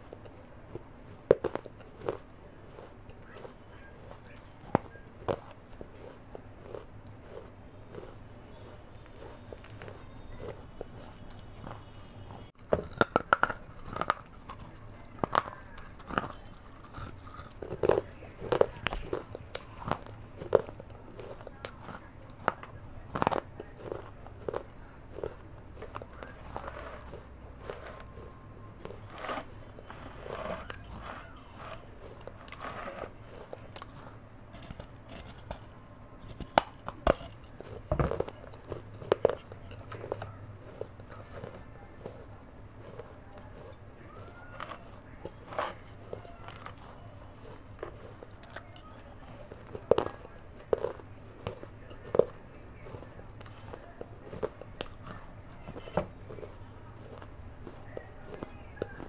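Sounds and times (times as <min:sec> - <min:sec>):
clay pot crunching when bitten: 0:00.0 - 0:59.0.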